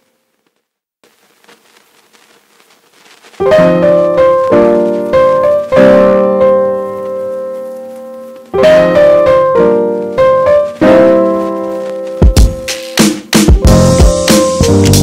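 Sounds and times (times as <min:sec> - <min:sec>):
piano chords ringing: 0:03.4 - 0:15.0.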